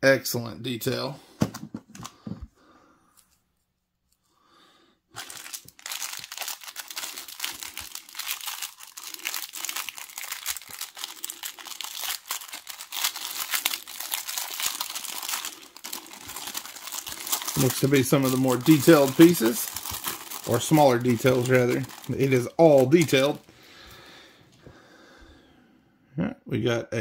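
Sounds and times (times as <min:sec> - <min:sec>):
plastic bag crinkling: 0:05.2 - 0:23.8.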